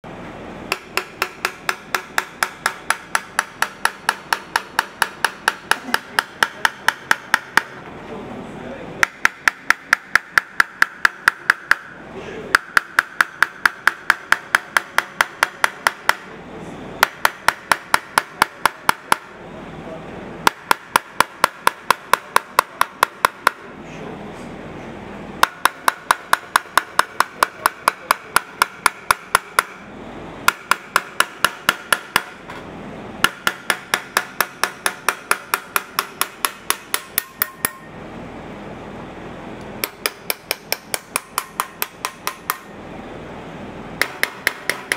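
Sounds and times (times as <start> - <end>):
hammer tapping metal punch: 0.7 - 7.9, 9.0 - 16.3, 17.0 - 19.4, 20.4 - 23.7, 25.4 - 29.8, 30.5 - 32.6, 33.2 - 37.9, 39.8 - 42.8, 44.0 - 44.9.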